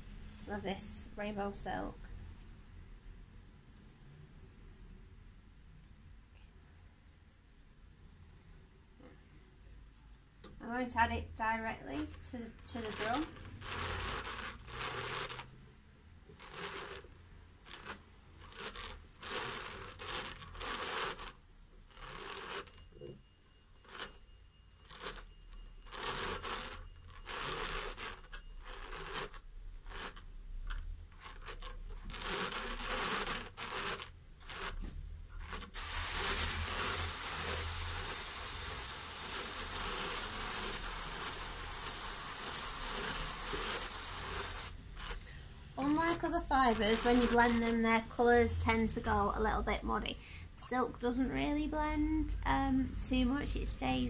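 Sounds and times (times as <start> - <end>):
continuous hiss: 5.4 - 54.0
drum carder rasping strokes: 12.0 - 15.5, 16.4 - 17.1, 17.7 - 23.2, 25.9 - 30.2, 31.2 - 47.8.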